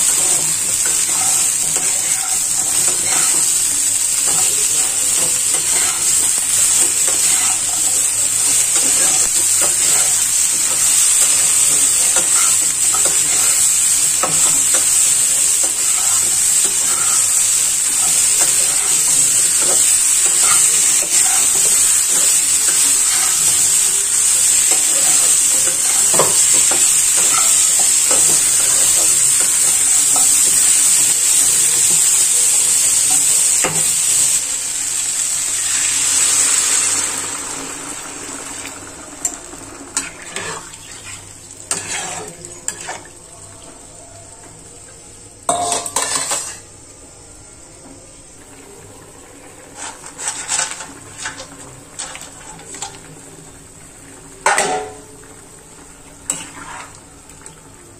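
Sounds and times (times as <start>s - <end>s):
spatula scraping pan: 0.0s - 30.4s, 40.0s - 43.1s, 49.6s - 53.0s, 56.3s - 57.0s
vegetables sizzling in oil: 0.0s - 57.9s.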